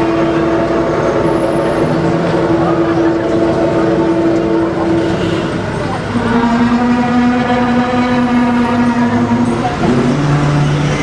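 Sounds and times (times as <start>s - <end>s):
bus engine whining: 0.0s - 11.0s.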